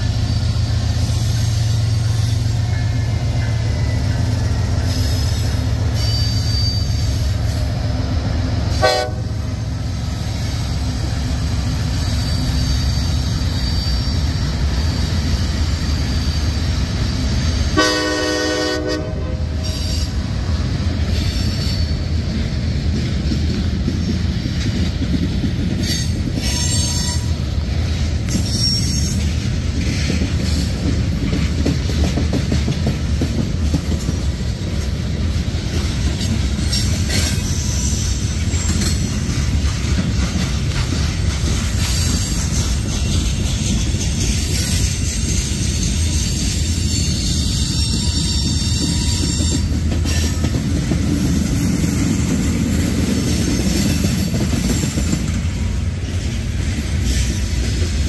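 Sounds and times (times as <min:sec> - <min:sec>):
high wheel squeal: 0:00.0 - 0:07.8, 0:11.7 - 0:17.3, 0:19.6 - 0:20.2, 0:21.0 - 0:22.2, 0:25.8 - 0:27.5, 0:28.3 - 0:29.4, 0:36.6 - 0:39.0, 0:41.7 - 0:50.5
diesel locomotives rumbling: 0:00.0 - 0:58.0
wheels clacking on rails: 0:00.0 - 0:58.0
train horn blast: 0:08.7 - 0:09.6, 0:17.7 - 0:20.1.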